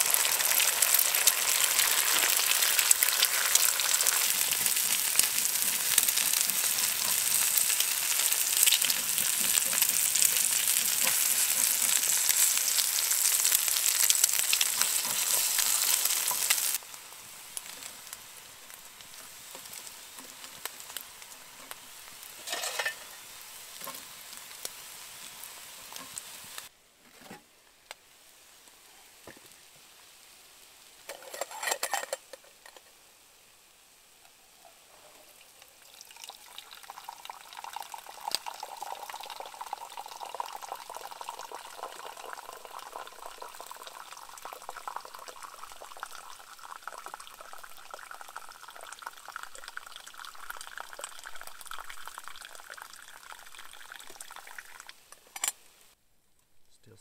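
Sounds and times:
coffee pouring into mug: 35.8s - 55.0s.

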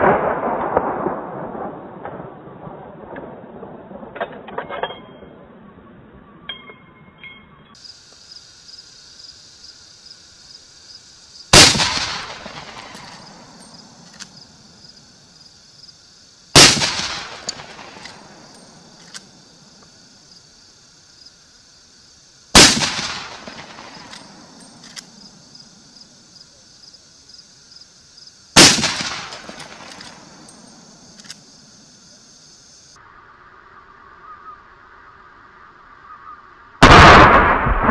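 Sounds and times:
rifle shots: 11.5s - 14.4s, 16.5s - 19.3s, 22.5s - 25.2s, 28.6s - 30.6s, 36.8s - 37.9s
faint clicks: 29.5s - 31.5s.

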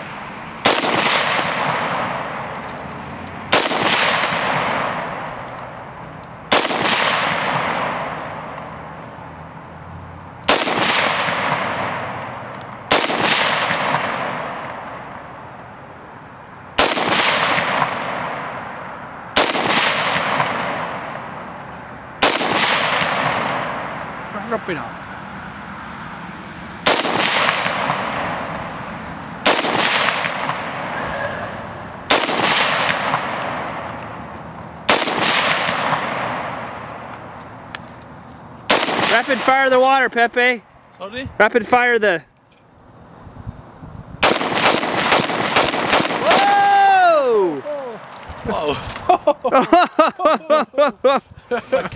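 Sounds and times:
rifle shots with echo: 0.6s - 2.6s, 3.5s - 5.7s, 6.5s - 9.0s, 10.5s - 15.4s, 16.8s - 24.2s, 26.8s - 28.8s, 29.4s - 31.0s, 32.1s - 34.2s, 34.8s - 37.1s, 38.7s - 39.8s, 44.2s - 46.6s.

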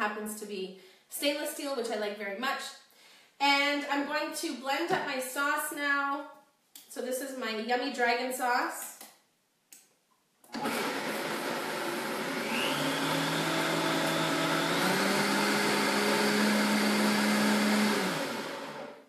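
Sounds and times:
blender motor running: 10.5s - 19.0s.

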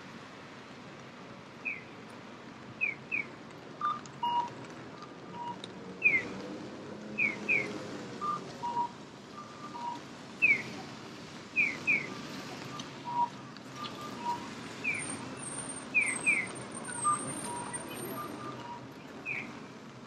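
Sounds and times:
electronic bird-call crossing signal: 7.5s - 10.7s, 11.6s - 15.2s, 15.9s - 19.5s.

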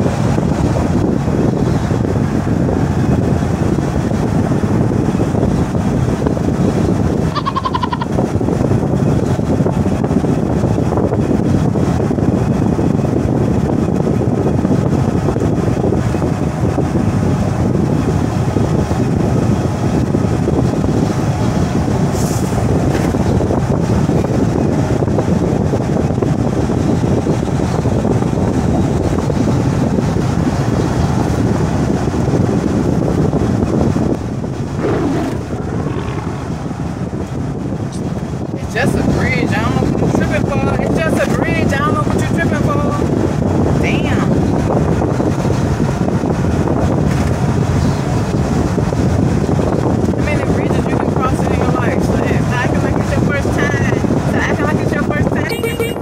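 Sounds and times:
wind rushing past: 0.0s - 40.2s
vehicle road and engine noise: 0.0s - 56.0s.

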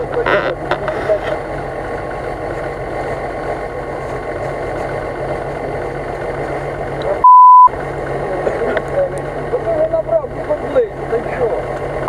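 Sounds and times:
vehicle engine idling: 0.0s - 12.0s
loud one-tone beep: 7.2s - 7.7s.

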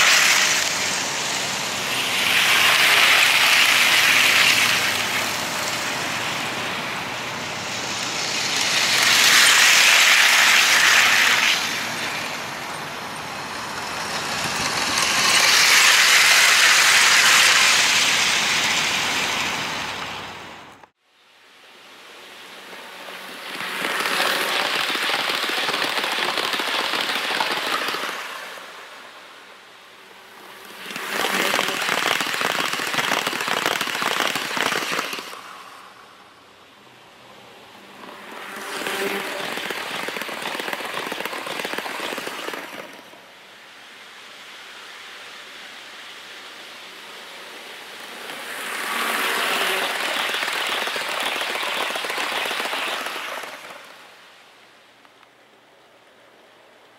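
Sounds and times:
model trains clattering on track: 0.0s - 6.7s, 7.7s - 20.1s, 22.6s - 28.9s, 30.2s - 35.7s, 38.0s - 43.2s, 48.0s - 54.0s.

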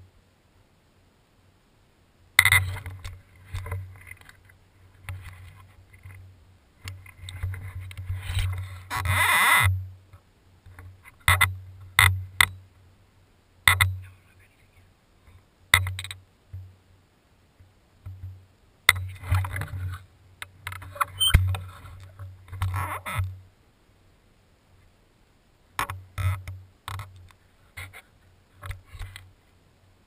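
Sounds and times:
rustling: 2.3s - 16.7s, 17.5s - 23.5s, 25.7s - 29.7s
sharp clicks and knocks: 2.4s - 6.2s, 6.8s - 12.6s, 13.7s - 14.0s, 15.3s - 16.7s, 18.0s - 23.4s, 25.8s - 28.0s.

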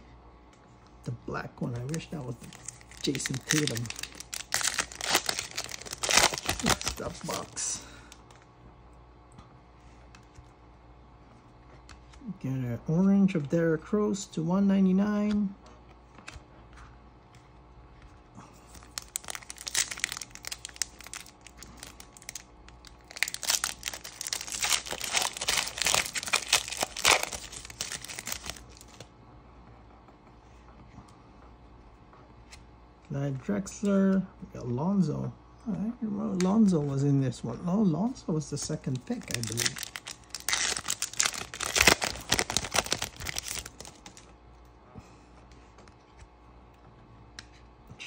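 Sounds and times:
foil wrapper tearing and crinkling: 1.8s - 7.6s, 18.7s - 29.0s, 39.0s - 44.3s.

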